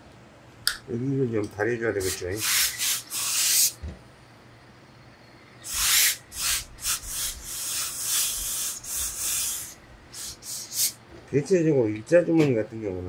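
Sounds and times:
steam iron hissing: 0:02.0 - 0:03.8, 0:05.6 - 0:11.0.

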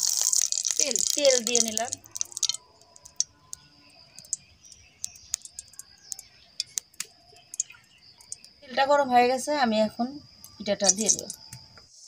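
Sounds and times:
oil sizzling in a wok: 0:00.0 - 0:03.3
oil crackling and popping: 0:00.0 - 0:08.6, 0:10.8 - 0:11.4.

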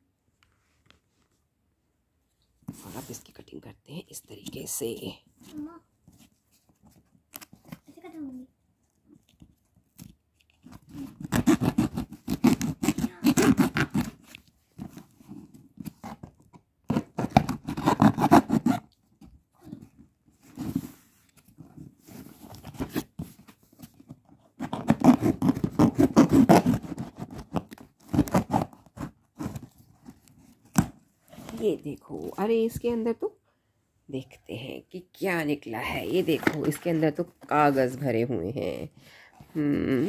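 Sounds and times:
cardboard tearing: 0:09.9 - 0:16.3, 0:16.9 - 0:18.9, 0:24.0 - 0:31.6
cardboard box being cut open: 0:10.7 - 0:14.3, 0:16.9 - 0:18.9, 0:24.6 - 0:29.9
scraping on cardboard: 0:16.9 - 0:18.8, 0:20.4 - 0:30.6.

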